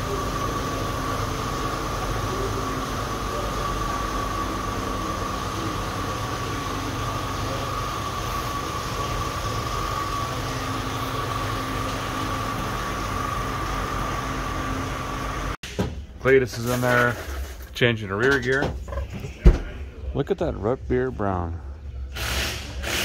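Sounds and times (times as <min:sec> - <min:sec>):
high-pitched whine: 0:00.0 - 0:15.6
shop machinery running: 0:00.0 - 0:20.1, 0:21.4 - 0:23.0.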